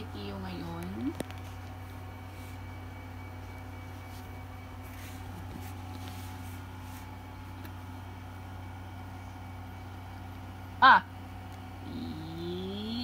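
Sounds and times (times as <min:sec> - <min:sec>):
stand fan humming: 0:00.0 - 0:13.0
faint soft rustles: 0:03.8 - 0:07.6.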